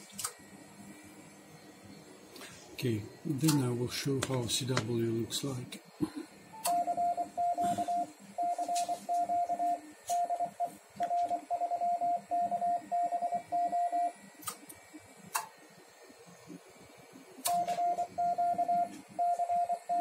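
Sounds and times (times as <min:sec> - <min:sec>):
morse code beeps: 0:06.5 - 0:14.1, 0:17.5 - 0:20.0.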